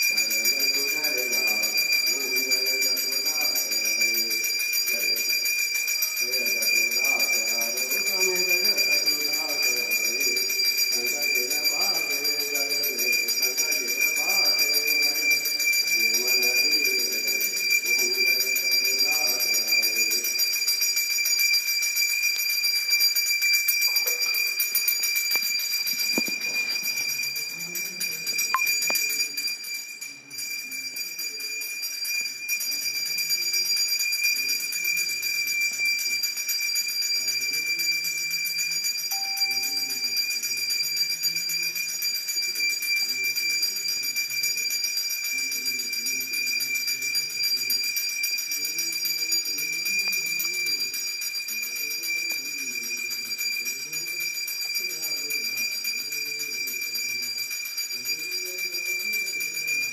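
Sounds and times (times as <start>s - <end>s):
temple bells ringing: 39.1s - 40.7s.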